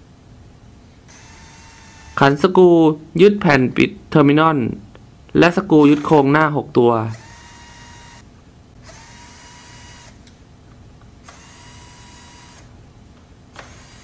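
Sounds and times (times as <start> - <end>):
drill motor whine: 1.1 - 2.3, 7.1 - 10.2, 11.2 - 12.7, 13.6 - 14.0.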